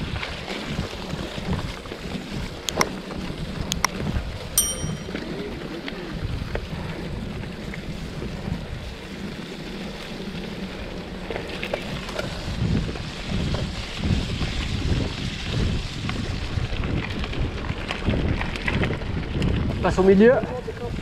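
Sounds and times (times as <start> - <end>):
wind buffeting microphone: 11.8 - 21.0.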